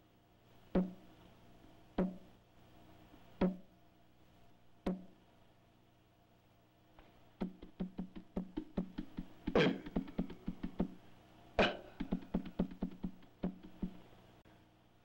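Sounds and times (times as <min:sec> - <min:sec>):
faint steady hum: 0:00.0 - 0:15.0
low drum strikes: 0:07.4 - 0:11.0, 0:11.6 - 0:14.0.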